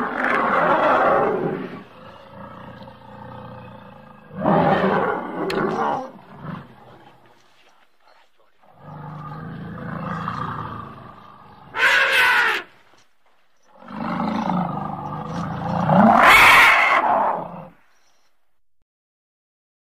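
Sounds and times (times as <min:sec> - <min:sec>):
elephant trumpeting: 0:09.8 - 0:12.8, 0:13.8 - 0:17.7.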